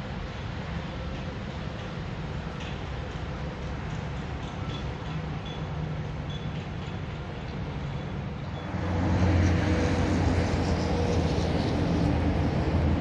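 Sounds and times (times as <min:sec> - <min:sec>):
large engine rumbling: 0:06.0 - 0:13.0.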